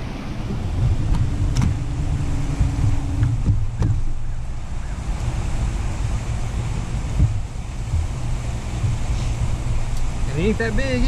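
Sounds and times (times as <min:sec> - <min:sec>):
water around boat: 0:00.0 - 0:11.0
wind rumbling on microphone: 0:00.0 - 0:11.0
sharp knocks: 0:00.8 - 0:04.4.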